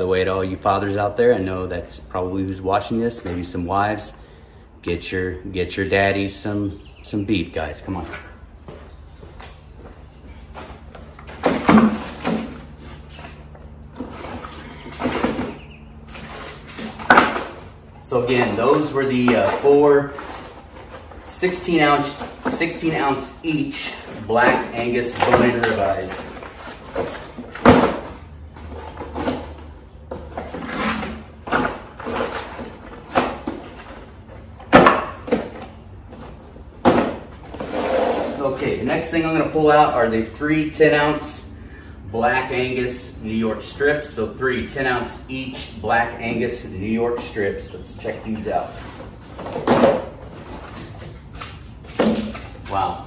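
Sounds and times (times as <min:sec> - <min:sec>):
cardboard rustling: 0:10.4 - 0:38.7, 0:48.0 - 0:53.0.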